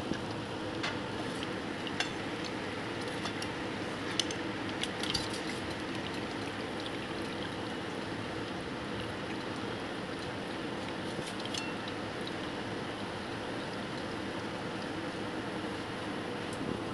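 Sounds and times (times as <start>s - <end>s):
hot oil sizzling and bubbling: 0.0s - 16.9s
wire skimmer clinking on pan: 3.1s - 6.3s, 11.3s - 12.0s.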